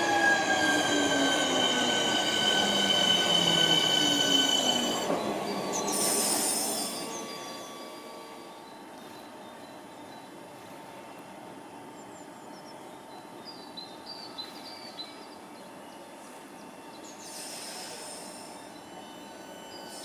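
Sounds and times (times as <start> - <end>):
train rolling rumble: 0.0 - 14.8
high-pitched hiss: 0.6 - 9.3, 17.1 - 20.0.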